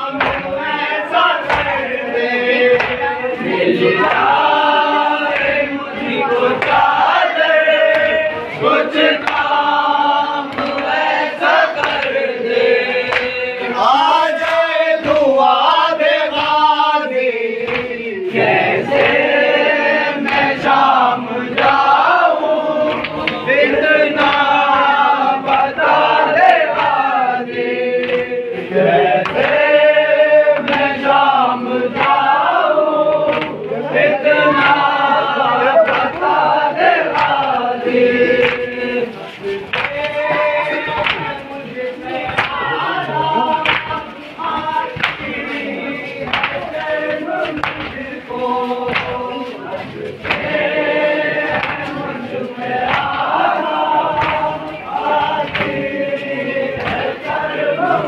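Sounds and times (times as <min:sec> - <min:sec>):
hands slapping chests: 0:00.0 - 0:01.9, 0:02.7 - 0:03.1, 0:08.8 - 0:13.4, 0:17.6 - 0:19.5, 0:21.5 - 0:28.4, 0:29.0 - 0:33.7, 0:34.5 - 0:41.6, 0:42.2 - 0:57.5
men chanting a lament: 0:00.0 - 0:58.0.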